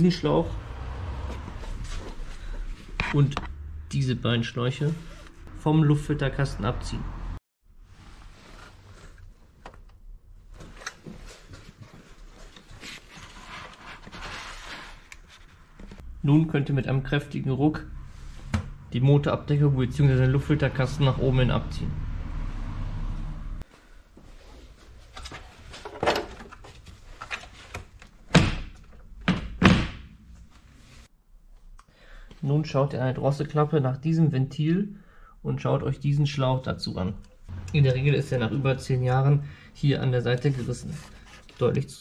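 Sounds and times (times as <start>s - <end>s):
rubber hoses rubbing and handling: 40.3s - 41.9s.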